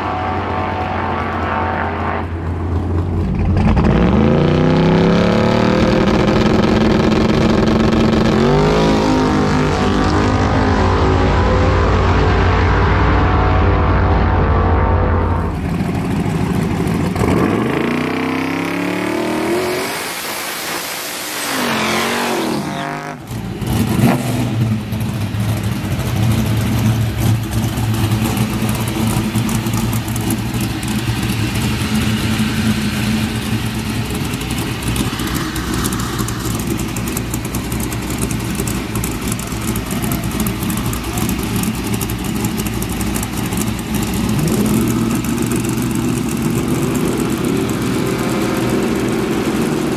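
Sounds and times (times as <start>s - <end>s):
drag racer engine accelerating: 0.0s - 49.9s
pickup engine idling: 2.3s - 3.8s, 14.8s - 17.4s, 24.6s - 49.9s.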